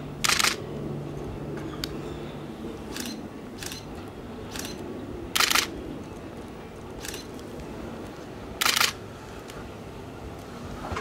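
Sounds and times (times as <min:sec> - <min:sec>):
electric train rumbling: 0:00.0 - 0:11.0
camera shutters clicking: 0:00.2 - 0:00.6, 0:02.9 - 0:03.8, 0:05.4 - 0:05.7, 0:07.0 - 0:07.3, 0:08.6 - 0:09.0.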